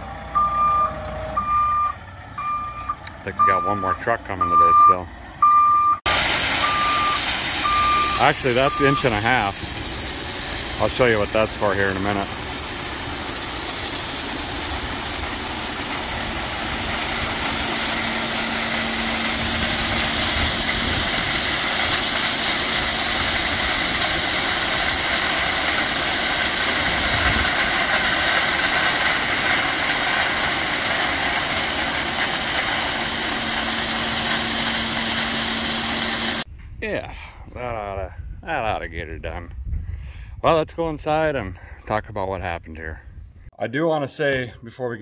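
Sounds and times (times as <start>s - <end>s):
diesel engine running: 0.0s - 36.5s
crushed stone pouring: 6.1s - 36.4s.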